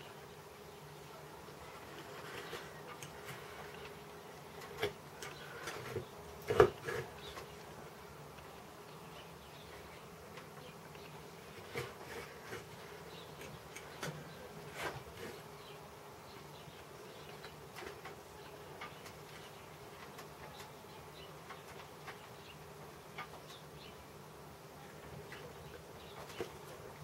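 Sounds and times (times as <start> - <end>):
steady faint hum: 0.0 - 27.0
knife carving wood: 4.7 - 7.4.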